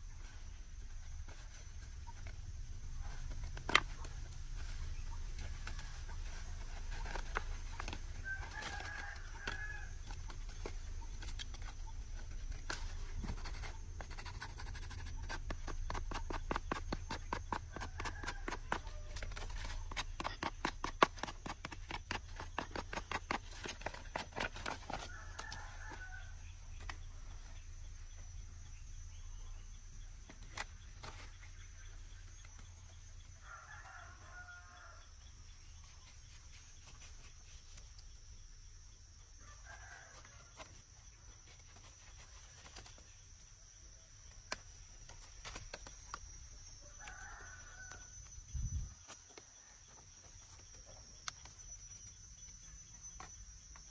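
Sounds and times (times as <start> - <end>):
rooster crowing: 8.2 - 10.1, 24.9 - 26.5, 33.4 - 35.1, 46.8 - 48.2.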